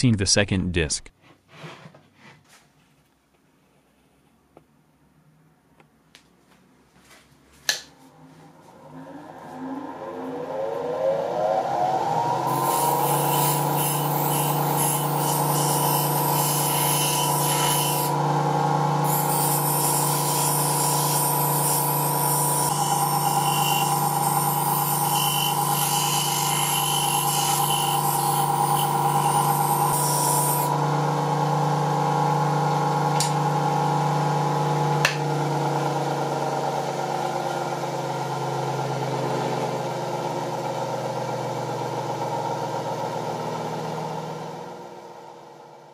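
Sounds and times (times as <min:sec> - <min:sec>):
bench grinder motor hum: 0:08.6 - 0:45.0
steel bar grinding on wheel: 0:12.5 - 0:18.2, 0:19.0 - 0:30.8.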